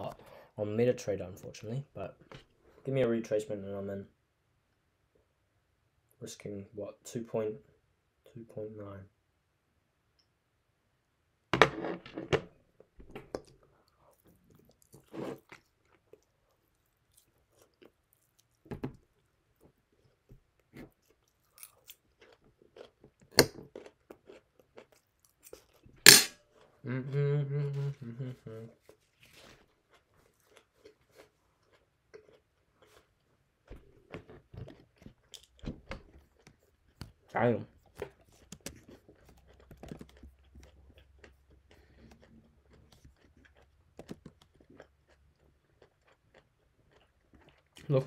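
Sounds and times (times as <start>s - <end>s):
person chewing crunchy food: 13.3s - 26.8s, 28.8s - 48.0s.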